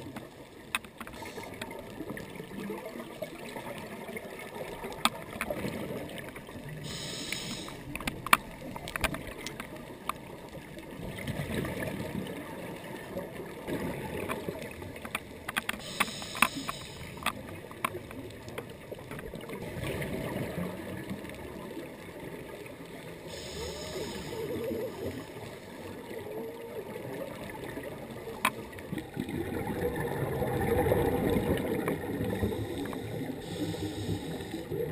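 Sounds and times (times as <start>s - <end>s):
regulator hissing inhale: 6.8s - 7.9s, 15.8s - 17.2s, 23.3s - 25.8s, 32.2s - 34.9s
gurgling exhaled bubbles: 10.8s - 15.0s, 18.3s - 34.9s
sharp clicks: 15.1s - 18.0s.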